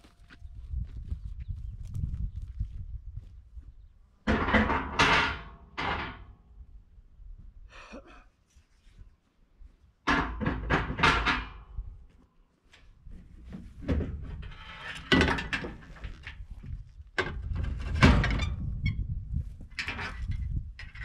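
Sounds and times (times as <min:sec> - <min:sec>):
heavy clunks and thuds: 0:13.1 - 0:15.9.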